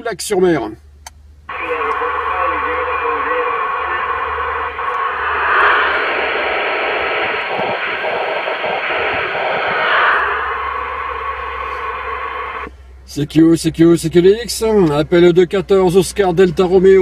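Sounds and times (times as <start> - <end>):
radio static hiss: 1.5 - 12.8.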